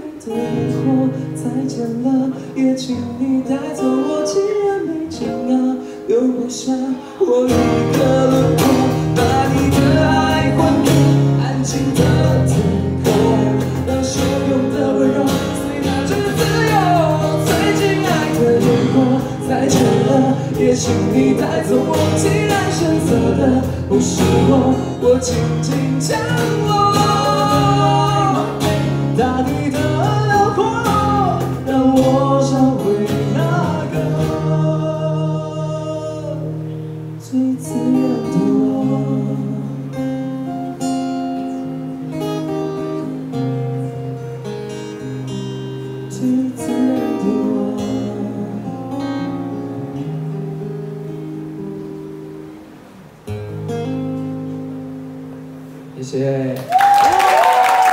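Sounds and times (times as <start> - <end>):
strummed acoustic guitars: 0.0 - 56.2
voices singing: 6.6 - 36.6, 37.2 - 40.1
cajon beat: 7.5 - 34.7.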